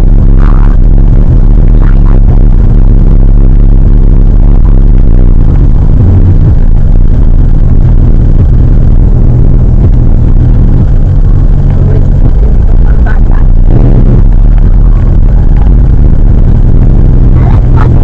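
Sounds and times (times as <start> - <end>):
car engine and road noise: 0.0 - 18.0.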